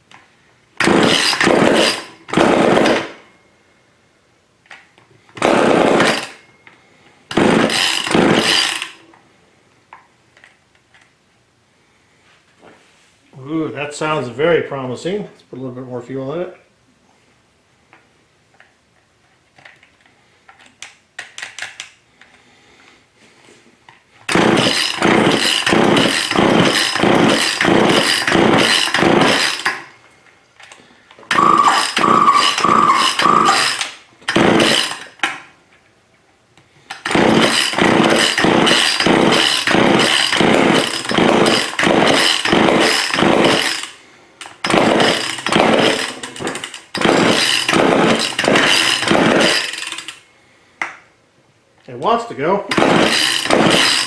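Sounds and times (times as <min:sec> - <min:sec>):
chainsaw pull-cord starter pulls: 0:00.8 - 0:03.2, 0:05.4 - 0:06.4, 0:07.3 - 0:09.0, 0:24.2 - 0:29.9, 0:30.6 - 0:35.4, 0:36.9 - 0:50.2, 0:52.7 - 0:54.0.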